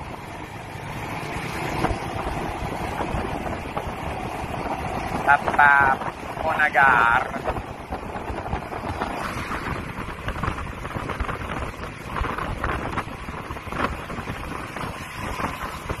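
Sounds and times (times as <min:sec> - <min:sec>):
motorbike engine and road noise: 0:00.0 - 0:16.0
surrounding traffic: 0:00.0 - 0:16.0
wind buffeting microphone: 0:00.0 - 0:16.0.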